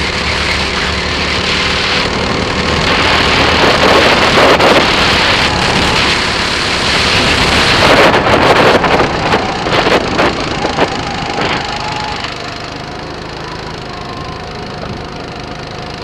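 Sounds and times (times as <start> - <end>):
wind noise: 0.0 - 12.4
go-kart engine: 0.0 - 16.0.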